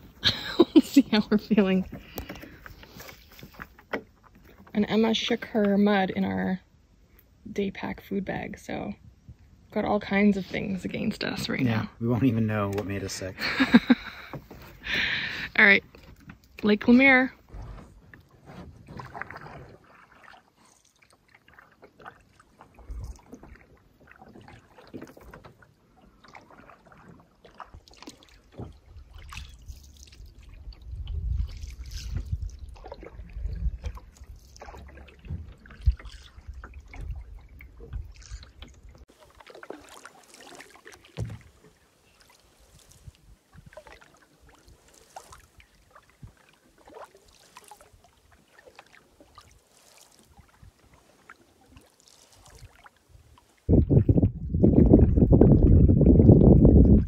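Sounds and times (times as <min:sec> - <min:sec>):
paddle strokes in water: 0:00.0 - 0:06.0, 0:12.6 - 0:57.0
small splashes: 0:12.7 - 0:55.9
low rumble: 0:53.7 - 0:57.0.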